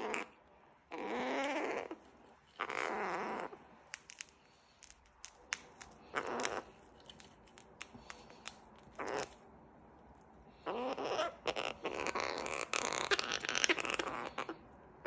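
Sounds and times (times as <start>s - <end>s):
cockatoo raspy calls: 0.0s - 3.6s, 6.0s - 6.8s, 8.9s - 9.4s, 10.5s - 14.8s
beak clicking on rope toy: 1.2s - 9.4s.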